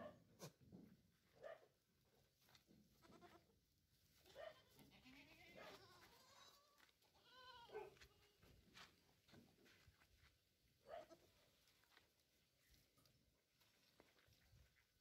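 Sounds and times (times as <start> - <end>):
goats bleating: 3.0 - 3.5, 4.5 - 8.3.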